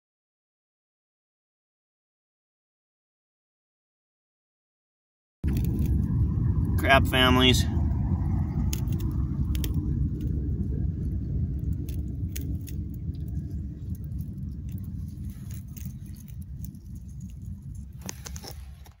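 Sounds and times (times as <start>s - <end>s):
low rumble: 5.4s - 19.0s.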